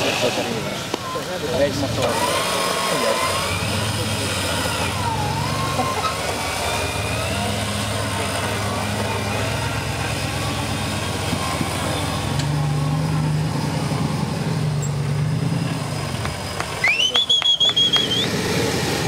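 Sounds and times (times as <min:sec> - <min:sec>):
faint voices: 0:00.0 - 0:14.3
off-road vehicle engine running: 0:00.0 - 0:19.0.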